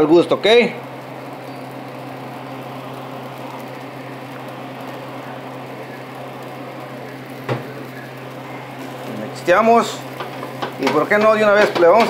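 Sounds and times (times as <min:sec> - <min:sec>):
fan whirring hum: 0:00.0 - 0:12.0
wooden spoon stirring rice in pan: 0:10.0 - 0:12.0.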